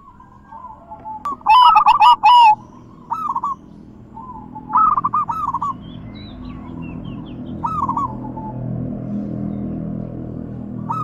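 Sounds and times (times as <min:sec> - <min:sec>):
dove cooing: 0:00.0 - 0:05.9, 0:07.2 - 0:08.8, 0:10.6 - 0:11.0.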